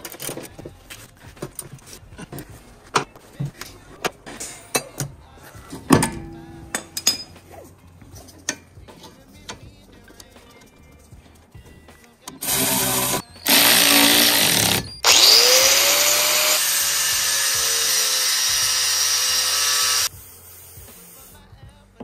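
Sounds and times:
angle grinder cutting metal: 0:12.4 - 0:20.1.

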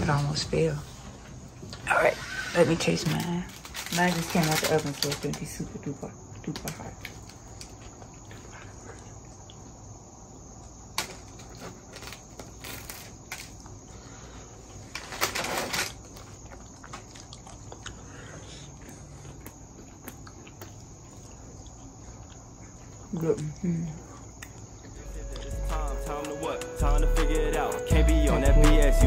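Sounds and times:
crust crunching: 0:02.8 - 0:05.7, 0:11.0 - 0:13.9
mouth and bread eating noises: 0:05.8 - 0:14.9, 0:16.0 - 0:26.2.

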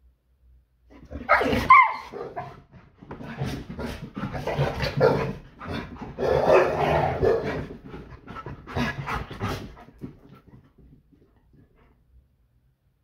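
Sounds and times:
drawn-out dog vocal sound: 0:00.9 - 0:12.0
dogs panting: 0:02.4 - 0:12.0.

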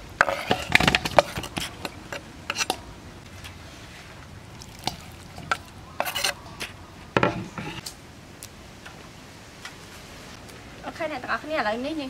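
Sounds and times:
scraping on wooden cutting board: 0:00.2 - 0:02.8, 0:05.4 - 0:06.4, 0:07.2 - 0:07.8.

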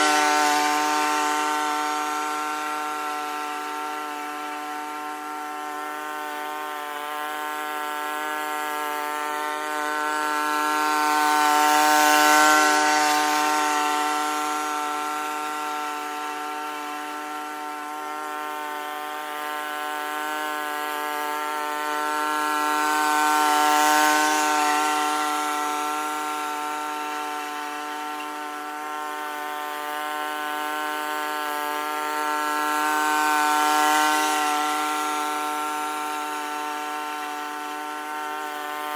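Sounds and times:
lawn mower running: 0:00.0 - 0:38.9.

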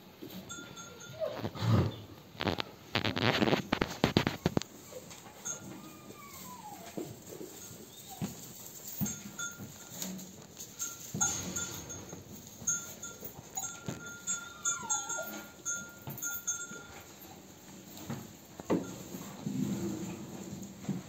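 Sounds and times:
faint high tones: 0:05.4 - 0:07.0
soft knocks and rustles: 0:17.8 - 0:21.0.

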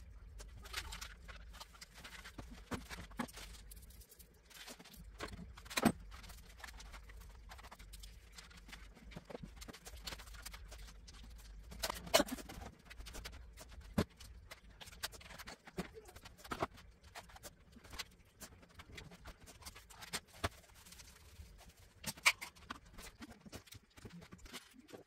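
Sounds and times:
small objects knocking and clattering: 0:00.1 - 0:25.0.

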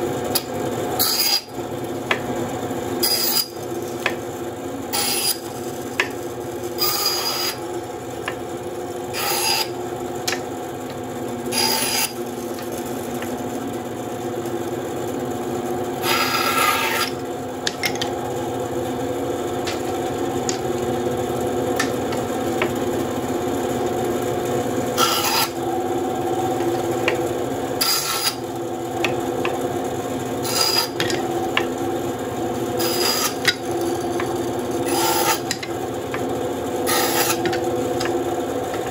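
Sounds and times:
bandsaw humming: 0:00.3 - 0:38.9
blade rasping through wood: 0:06.8 - 0:07.6, 0:09.1 - 0:09.7, 0:11.5 - 0:13.0, 0:16.0 - 0:17.2, 0:25.0 - 0:25.6, 0:27.8 - 0:28.4, 0:30.4 - 0:31.0, 0:32.8 - 0:35.6, 0:36.8 - 0:38.2.

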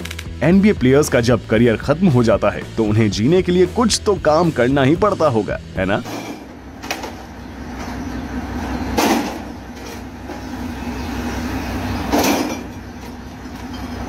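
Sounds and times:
crates of bottles clattering: 0:05.9 - 0:08.0, 0:08.8 - 0:10.7, 0:11.8 - 0:14.0.

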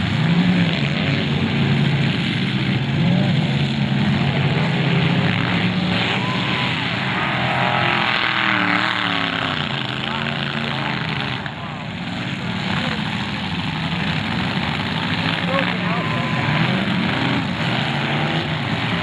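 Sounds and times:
car engines revving: 0:00.0 - 0:19.0.

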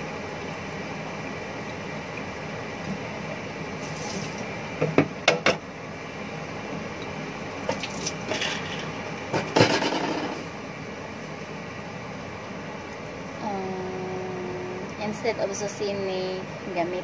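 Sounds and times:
steady background hum: 0:00.0 - 0:17.0
dishes and utensils clattering: 0:08.3 - 0:10.5.

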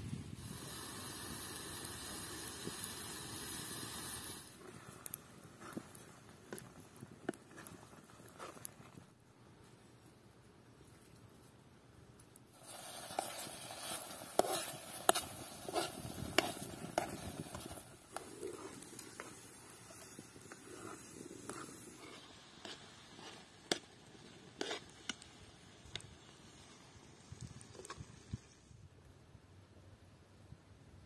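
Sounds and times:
spoon scraping metal pot: 0:12.6 - 0:25.2.

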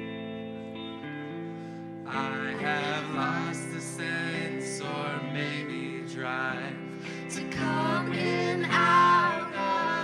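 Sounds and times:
electric guitar chords: 0:00.0 - 0:10.0
woman singing: 0:07.3 - 0:10.0.

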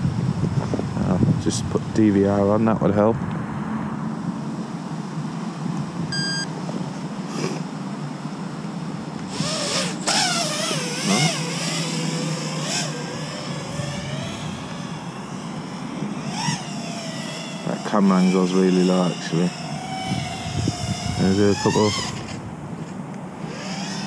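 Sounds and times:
wind noise: 0:00.0 - 0:04.4, 0:13.6 - 0:15.3, 0:20.0 - 0:23.7
quadcopter motors whining: 0:04.4 - 0:24.0
short electronic beep: 0:06.1 - 0:06.5.

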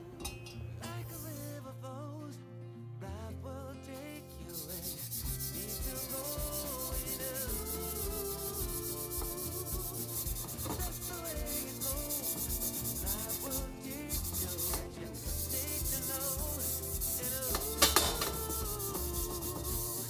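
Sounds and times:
background music with melody: 0:00.0 - 0:20.0
brisk scrubbing strokes: 0:04.3 - 0:20.0.

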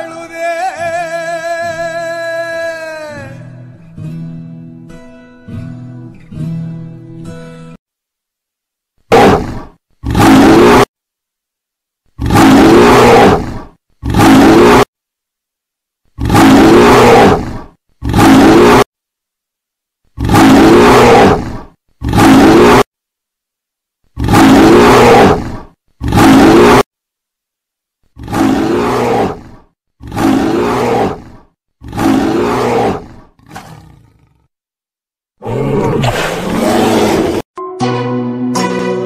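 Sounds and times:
animal roar over loudspeaker: 0:20.2 - 0:21.5, 0:28.2 - 0:31.2.

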